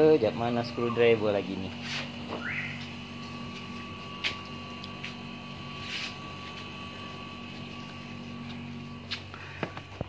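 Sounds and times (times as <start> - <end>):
faint high whine: 0.0 - 10.0
steady machine hum: 0.0 - 10.0.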